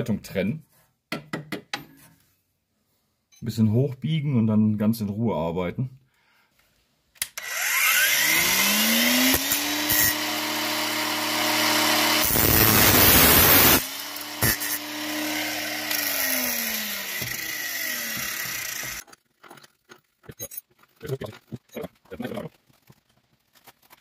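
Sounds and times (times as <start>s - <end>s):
angle grinder motor whine: 7.4s - 19.0s
grinding disc on metal: 7.4s - 19.2s.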